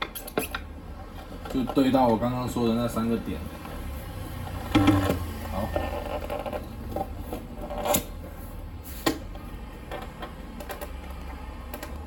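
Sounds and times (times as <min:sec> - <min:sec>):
low steady hum: 0:04.6 - 0:05.6.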